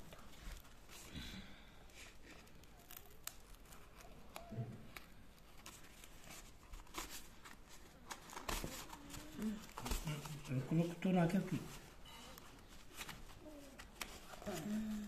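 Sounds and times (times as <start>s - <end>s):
cardboard packaging tearing: 2.1s - 10.4s.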